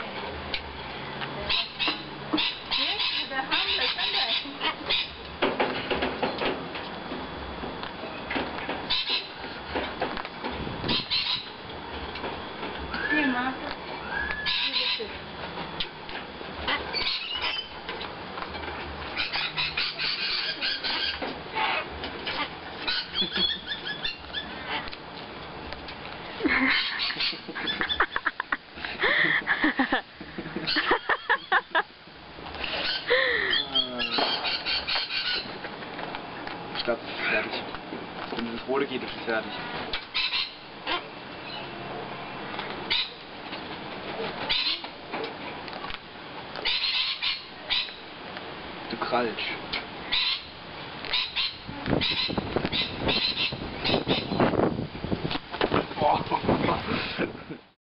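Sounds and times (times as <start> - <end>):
cockatoos calling and chattering: 1.4 - 5.6, 8.0 - 9.9, 10.8 - 11.8, 12.5 - 25.0, 25.7 - 37.8, 38.5 - 45.9, 46.6 - 48.3, 49.0 - 54.6.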